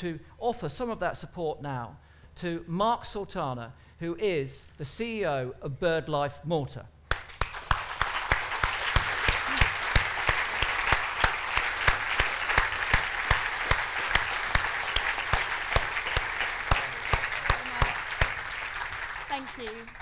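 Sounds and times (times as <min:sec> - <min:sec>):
audience applauding: 0:07.1 - 0:20.0.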